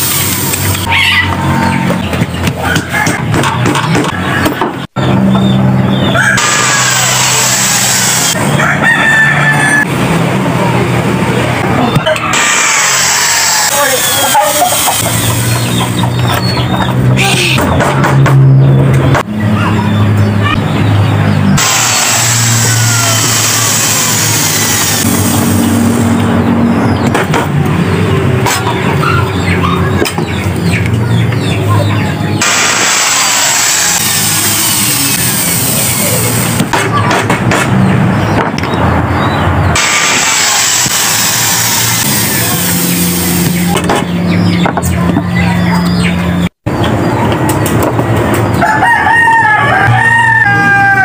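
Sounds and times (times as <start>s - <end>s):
engine-like hum: 0.0s - 51.0s
rooster crowing: 6.1s - 9.9s, 21.6s - 25.0s, 48.6s - 51.0s.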